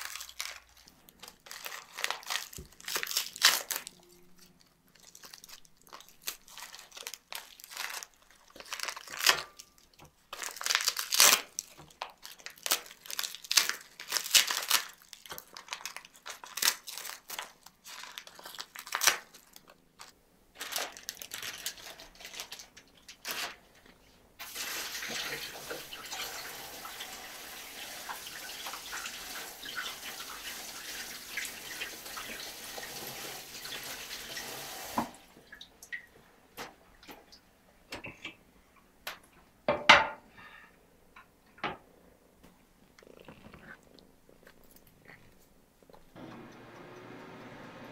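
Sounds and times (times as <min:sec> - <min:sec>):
cat crunching food: 0:00.0 - 0:20.2, 0:42.8 - 0:46.2
tap water running: 0:24.4 - 0:36.1.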